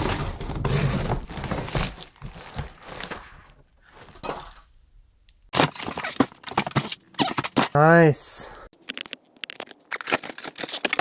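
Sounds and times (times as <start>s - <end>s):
cardboard and foam crackling: 0.0s - 4.2s, 5.5s - 7.8s, 8.8s - 11.0s
packing tape ripping: 5.5s - 7.7s, 8.9s - 11.0s.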